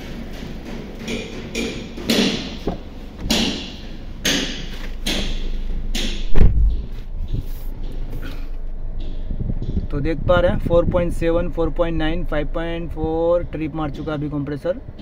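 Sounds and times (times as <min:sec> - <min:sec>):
car engine idling: 0:00.0 - 0:14.6
ac compressor running: 0:00.0 - 0:15.0
heavy slam: 0:04.4 - 0:07.4.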